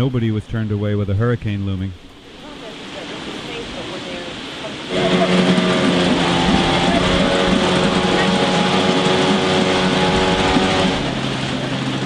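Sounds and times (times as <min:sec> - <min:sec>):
outboard motor running: 0:02.4 - 0:12.0.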